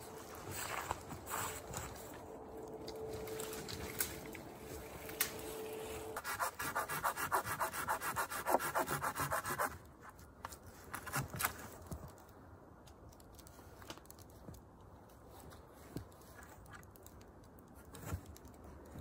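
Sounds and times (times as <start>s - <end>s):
hand saw cutting wood: 6.2s - 9.7s.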